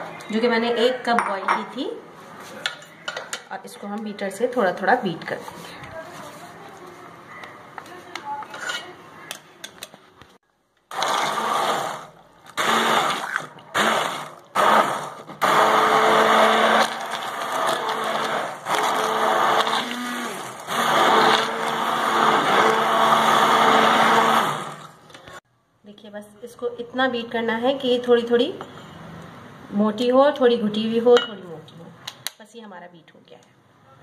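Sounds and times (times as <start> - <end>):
hand blender motor whirring: 10.9 - 25.0.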